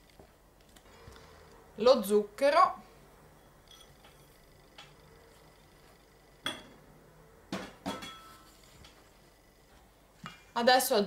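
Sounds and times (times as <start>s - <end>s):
ceramic bowl knocking steel bowl: 6.4s - 6.8s.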